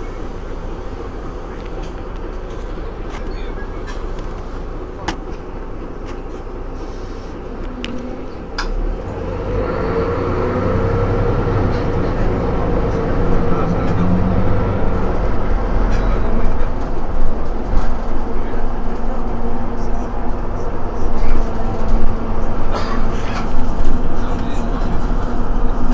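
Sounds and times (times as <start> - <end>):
bus diesel engine rumbling: 0.0 - 25.9.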